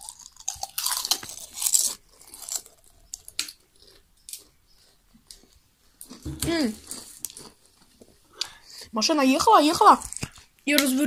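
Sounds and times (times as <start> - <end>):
person chewing crisps: 0.0 - 8.8.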